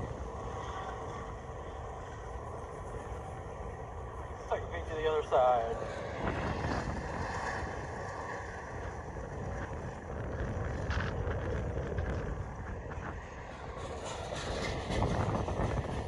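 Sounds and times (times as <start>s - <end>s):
freight train rumbling: 0.0s - 16.0s
wind on microphone: 5.8s - 16.0s.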